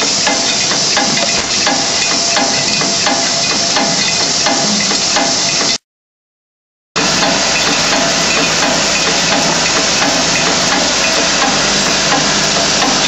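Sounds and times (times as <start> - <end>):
faint machine hum: 7.0 - 13.0.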